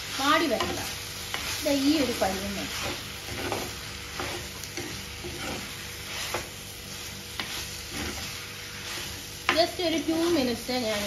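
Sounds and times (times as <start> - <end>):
vegetables sizzling in a pot: 0.0 - 11.0
spatula scraping and knocking pot: 2.7 - 6.6, 7.3 - 9.8.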